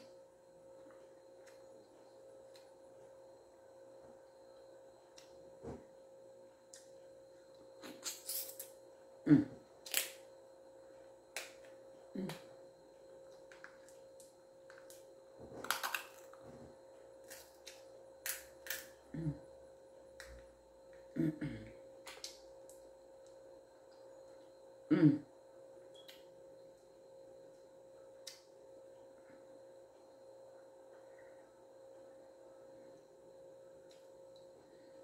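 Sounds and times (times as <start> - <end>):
faint steady hum: 0.0 - 35.0
crab shells cracking: 15.6 - 16.3.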